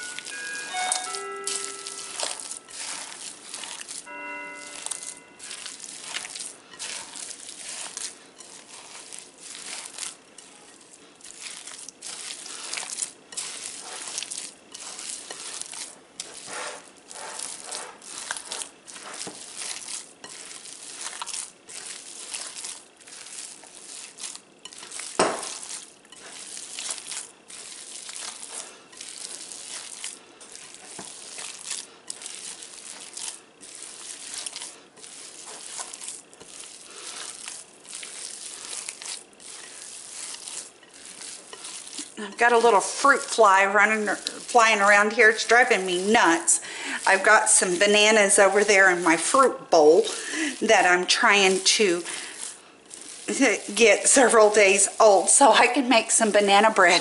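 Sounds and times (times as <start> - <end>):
hands kneading raw meat: 0.0 - 57.0.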